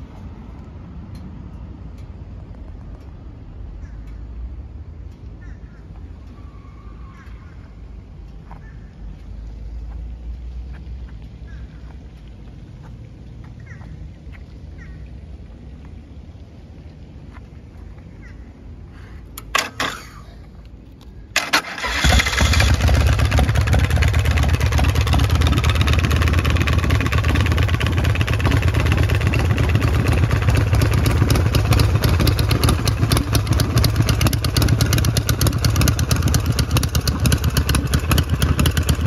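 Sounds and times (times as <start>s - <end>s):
engine cranking: 19.4s - 20.2s, 21.4s - 39.0s
motorcycle engine idling: 21.4s - 39.0s.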